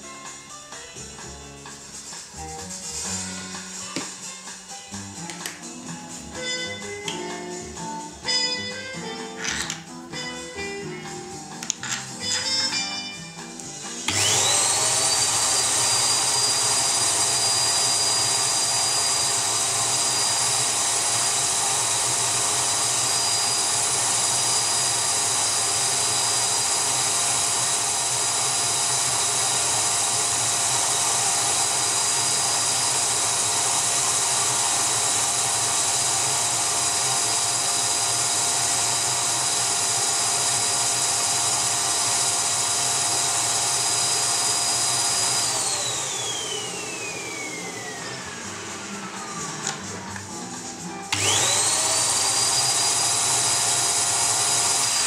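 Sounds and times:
vacuum motor whining: 11.9s - 55.0s.

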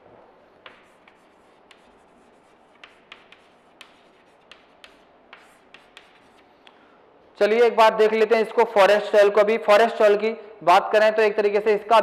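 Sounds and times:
chalk scratching on chalkboard: 0.4s - 6.8s
chalk tapping on chalkboard: 0.4s - 6.8s.

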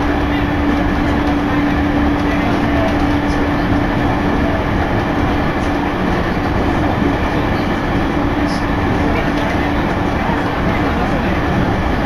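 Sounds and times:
train wheels rumbling on track: 0.0s - 12.0s.

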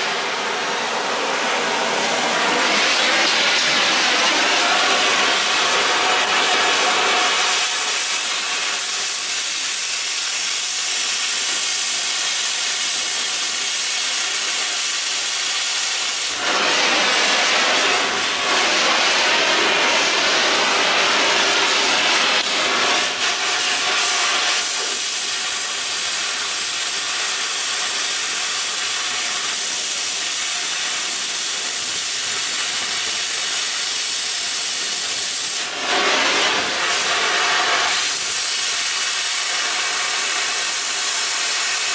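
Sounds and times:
cutting torch hissing: 0.0s - 41.9s.

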